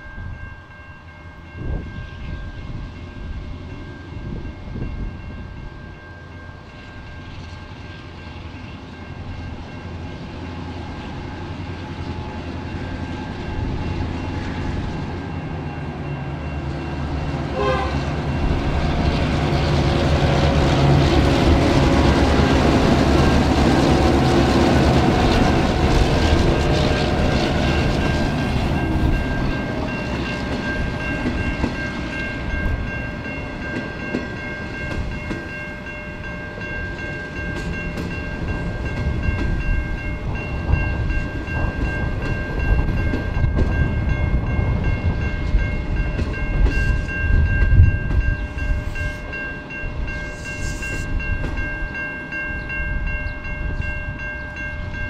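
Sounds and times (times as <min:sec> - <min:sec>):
diesel locomotive engines droning: 0:00.0 - 0:55.0
train wheels clattering on rails: 0:16.6 - 0:53.8.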